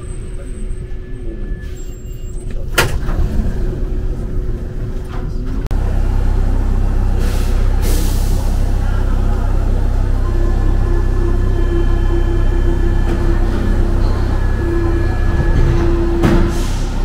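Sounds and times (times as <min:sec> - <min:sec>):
metro train rumbling: 0:00.0 - 0:17.0
steady low drone: 0:03.1 - 0:17.0.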